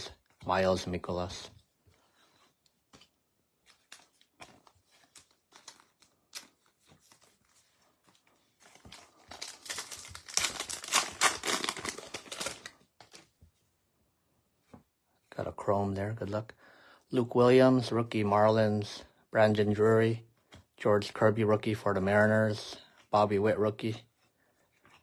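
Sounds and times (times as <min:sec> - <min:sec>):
card pack wrapper crinkling: 0:03.0 - 0:13.4.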